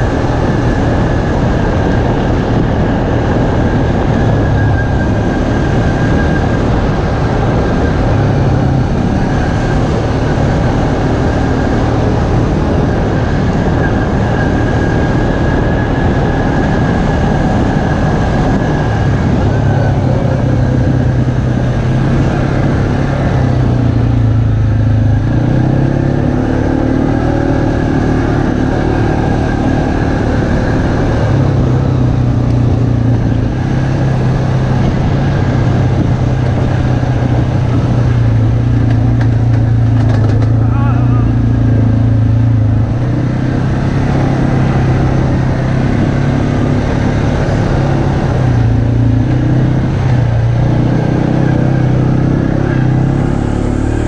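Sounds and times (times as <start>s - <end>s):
atv engine running: 0.0s - 54.0s
wind rush: 0.0s - 54.0s
tyre noise on dirt: 37.3s - 41.1s.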